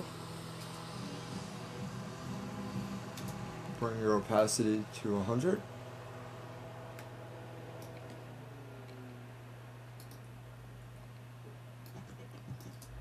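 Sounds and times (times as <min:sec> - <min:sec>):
steady low hum: 0:00.0 - 0:13.0
faint computer mouse clicks: 0:10.0 - 0:10.2.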